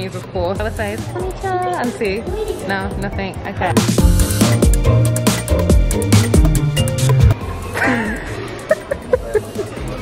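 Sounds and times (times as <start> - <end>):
electronic music with steady beat: 2.2 - 7.6.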